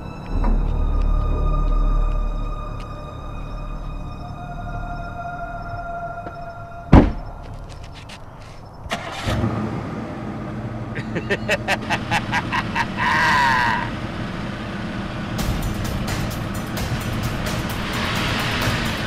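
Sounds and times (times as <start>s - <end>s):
wavering high tone: 0.4s - 8.0s
car engine starting and running: 8.7s - 19.0s.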